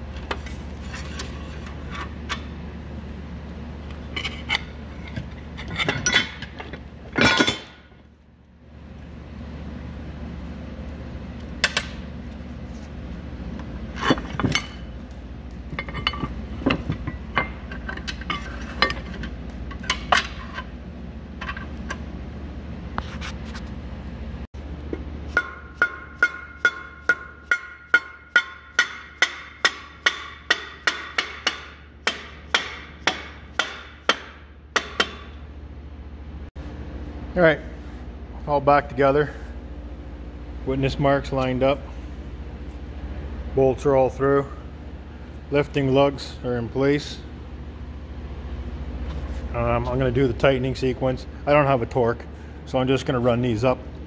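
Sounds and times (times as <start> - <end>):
steady low hum: 0.0 - 54.0
clinks and knocks of parts handled: 4.0 - 7.8, 15.6 - 20.7
hammer striking metal motor: 24.9 - 35.4.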